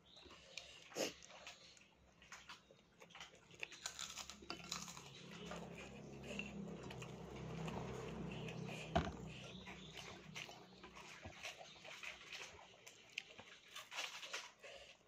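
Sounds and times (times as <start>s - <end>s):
close-up chewing food: 0.0s - 15.0s
low steady hum: 3.5s - 13.3s.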